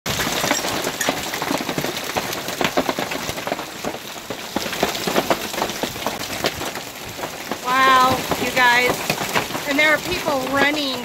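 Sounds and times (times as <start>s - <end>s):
hail falling: 0.1s - 11.0s
hailstones knocking hard surfaces: 0.1s - 11.0s.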